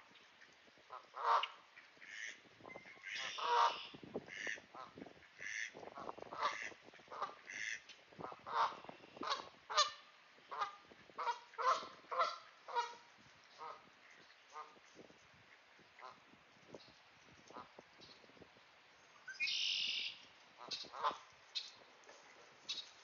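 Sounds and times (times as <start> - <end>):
goose honking: 0.9 - 13.0, 20.6 - 21.2.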